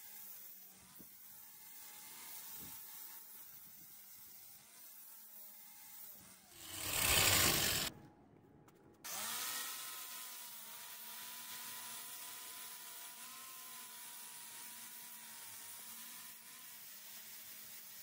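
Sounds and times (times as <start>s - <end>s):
angle grinder motor whine: 6.6s - 7.9s.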